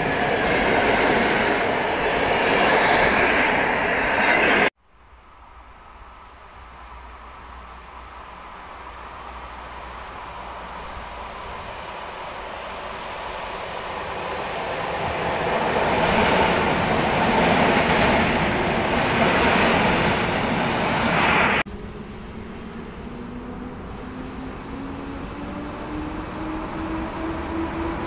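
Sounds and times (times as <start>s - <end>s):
electric locomotive approaching: 0.0s - 4.7s, 6.6s - 28.0s
electric train running noise: 13.6s - 28.0s
low hum rising in pitch: 21.7s - 28.0s.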